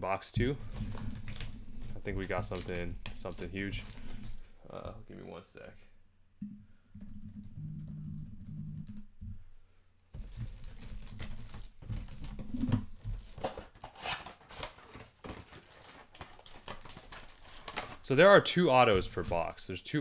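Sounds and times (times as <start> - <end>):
packaging crinkling and tearing: 0.4 - 4.6, 10.2 - 18.2, 18.8 - 19.6.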